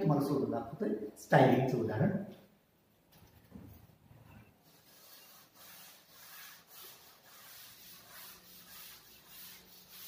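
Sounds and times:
duster rubbing chalkboard: 4.6 - 10.0.

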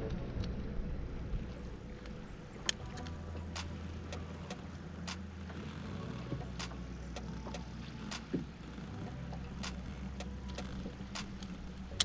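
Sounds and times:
boat motor hum: 0.0 - 12.0
sharp ticks: 3.4 - 5.5, 6.4 - 8.4, 9.3 - 12.0.

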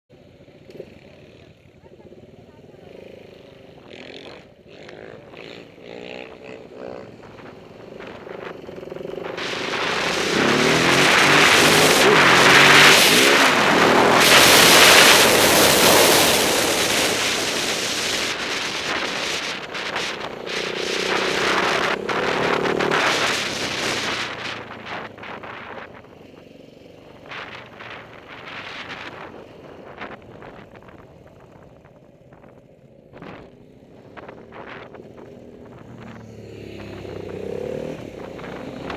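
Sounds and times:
motorcycle engine accelerating: 0.1 - 38.9
wind rush on microphone: 7.2 - 26.2, 27.2 - 38.9.

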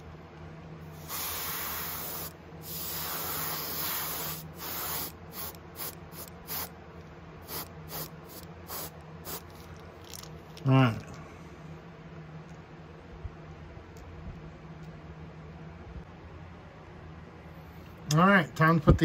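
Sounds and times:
airbrush spraying hiss: 0.9 - 6.7, 7.4 - 9.7.

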